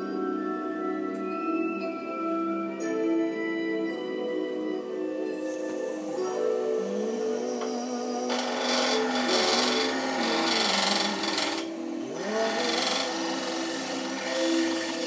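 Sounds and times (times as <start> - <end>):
wood lathe spinning: 7.1 - 15.0
tool rasping against spinning wood: 8.3 - 15.0.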